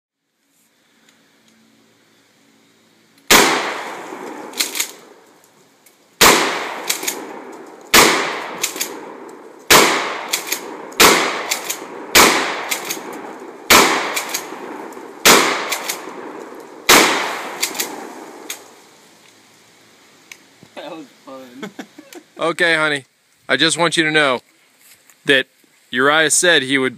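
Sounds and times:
shotgun blasts: 3.3s - 5.1s, 6.2s - 18.7s.

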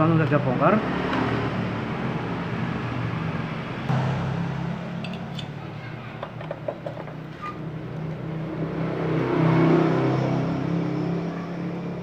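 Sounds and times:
vehicle engine running: 3.9s - 7.1s.

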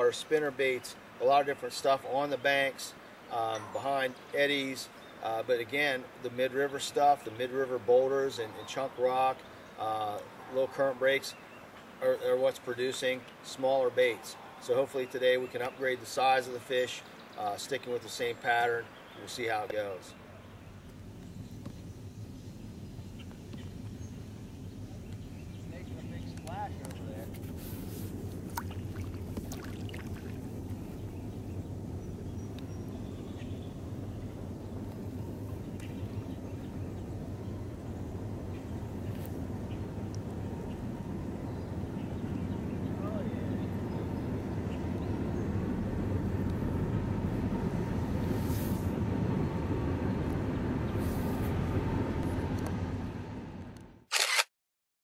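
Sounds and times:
low outdoor rumble: 18.7s - 54.0s.

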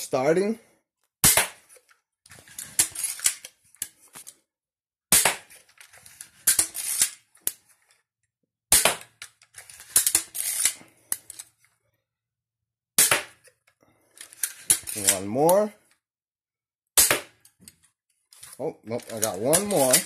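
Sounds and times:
crossbow re-cocking rattles and clicks: 1.6s - 4.4s, 5.4s - 8.0s, 9.0s - 11.7s, 13.4s - 15.6s, 17.4s - 20.0s.

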